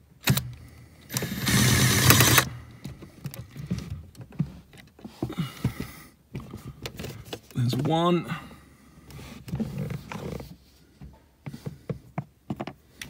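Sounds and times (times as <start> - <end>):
impact driver running: 0.2 - 2.6.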